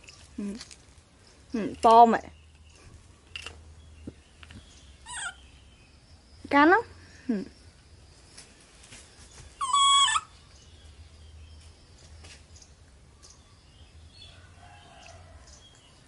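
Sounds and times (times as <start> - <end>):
baby monkey high call: 5.0 - 5.5, 9.6 - 10.4.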